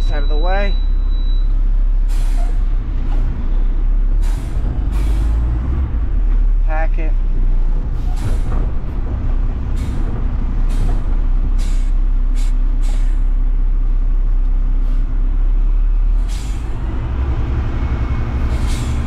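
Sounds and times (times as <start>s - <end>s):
garbage truck diesel engine: 0.0s - 19.0s
short hisses of air: 11.6s - 13.2s.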